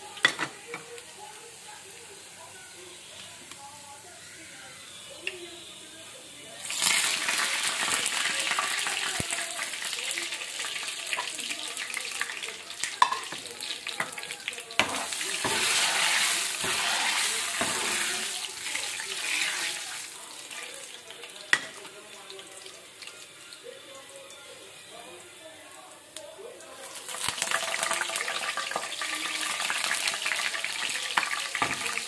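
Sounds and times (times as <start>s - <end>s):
spices sizzling in hot oil: 0.0s - 25.3s, 25.9s - 32.0s
metal spoon clicking on pan: 13.0s - 13.4s.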